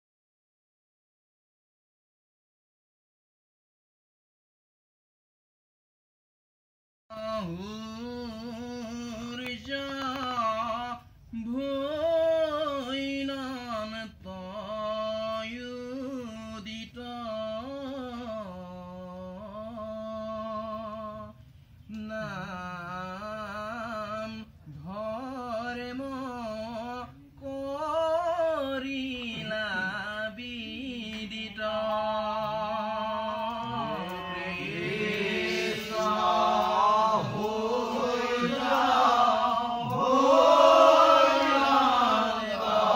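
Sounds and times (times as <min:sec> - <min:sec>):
man chanting: 0:07.1 - 0:42.8
group of voices chanting: 0:33.6 - 0:42.9.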